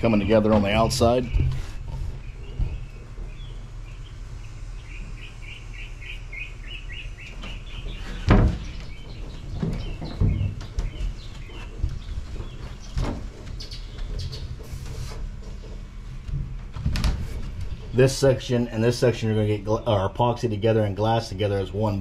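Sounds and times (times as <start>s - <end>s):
knocks and thumps: 0.0s - 3.7s, 7.3s - 18.0s
songbird chirping: 0.0s - 14.7s.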